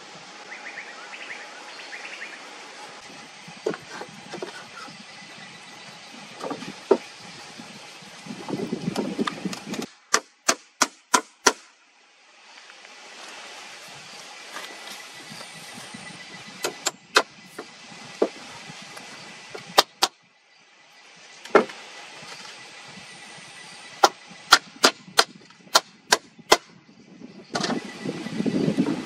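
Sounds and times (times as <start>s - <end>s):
rough noisy sound: 0.0s - 29.0s
tool striking wood: 9.5s - 11.7s, 21.5s - 21.8s, 24.0s - 26.8s.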